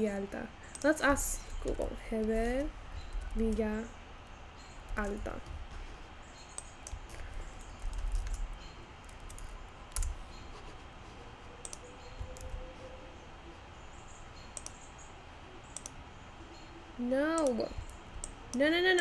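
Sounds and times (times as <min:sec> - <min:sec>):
mouse clicks: 0:06.4 - 0:10.2, 0:11.6 - 0:12.6, 0:14.5 - 0:14.9, 0:15.7 - 0:16.0.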